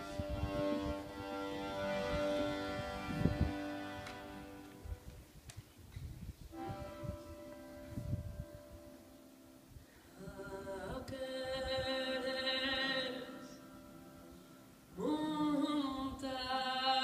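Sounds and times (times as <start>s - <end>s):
button accordion: 0.0s - 5.1s, 6.5s - 7.9s.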